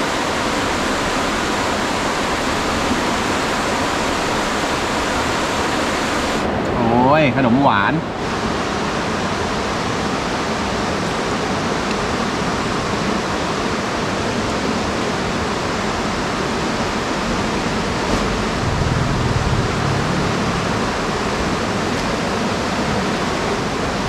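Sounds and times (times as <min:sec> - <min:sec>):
river rushing: 0:00.0 - 0:07.0, 0:08.1 - 0:24.0
low rumble: 0:18.1 - 0:22.6.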